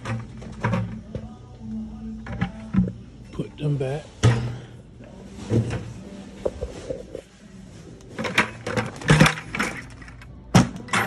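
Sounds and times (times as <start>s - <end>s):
metal shopping cart clattering: 8.1s - 11.0s.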